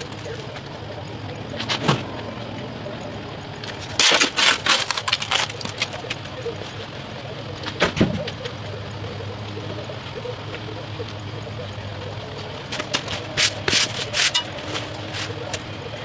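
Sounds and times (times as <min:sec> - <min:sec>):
shovel scraping into dirt: 0:13.4 - 0:15.4.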